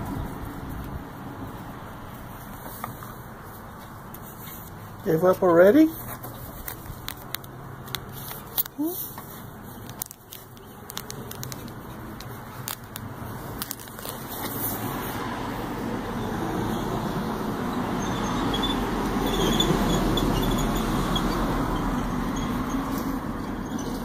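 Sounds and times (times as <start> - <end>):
road traffic noise: 0.0 - 24.0.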